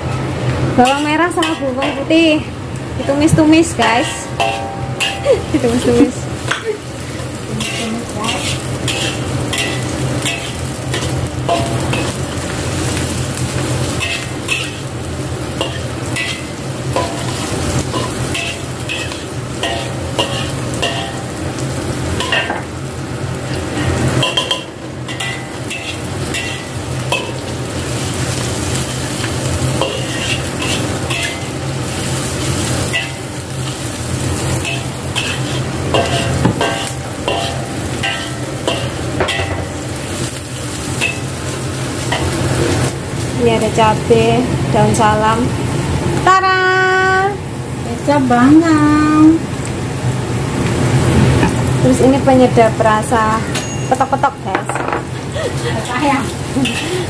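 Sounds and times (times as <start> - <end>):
shallots sizzling in a wok: 0.0 - 57.0
spatula scraping a wok: 7.5 - 12.4, 13.6 - 14.8, 15.6 - 21.2, 23.6 - 27.4, 28.5 - 39.6, 55.8 - 57.0.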